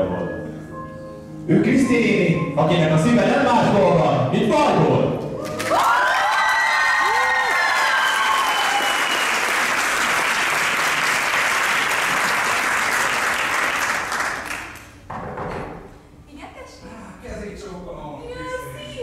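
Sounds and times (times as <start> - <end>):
high cheer: 5.4 - 13.6
audience applause: 5.4 - 14.8.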